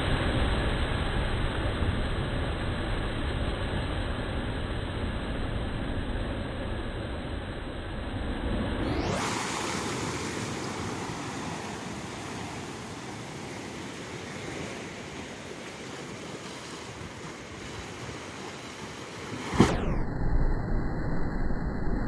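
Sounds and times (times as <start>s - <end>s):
waves breaking on seawall: 8.8s - 19.8s.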